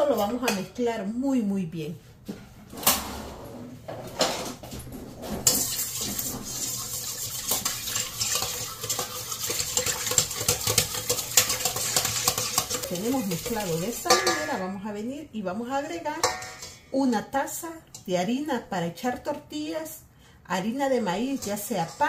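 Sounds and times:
whisk beating in metal bowl: 0:05.4 - 0:14.6, 0:21.1 - 0:22.0.

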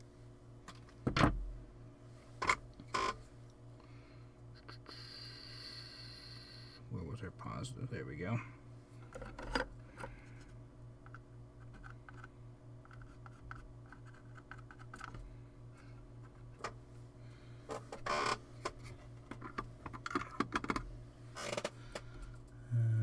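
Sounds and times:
low electrical hum: 0:00.0 - 0:23.0
hands and tools clicking and tapping: 0:18.6 - 0:20.8.

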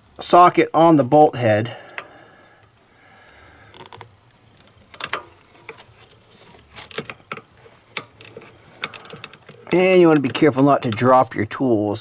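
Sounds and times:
ratchet metallic clicks: 0:03.7 - 0:11.2.

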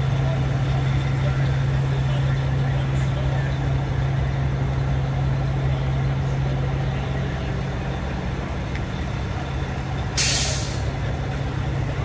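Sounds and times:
diesel truck engine idling: 0:00.0 - 0:12.0
air brake hiss: 0:10.2 - 0:10.9.

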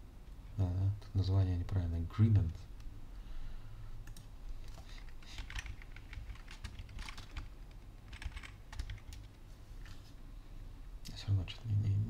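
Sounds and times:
computer keyboard typing: 0:04.0 - 0:09.4.

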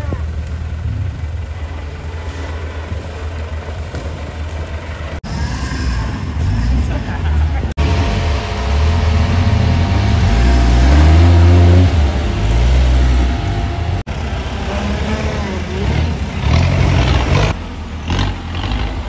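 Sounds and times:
off-road engines revving: 0:00.0 - 0:19.0.

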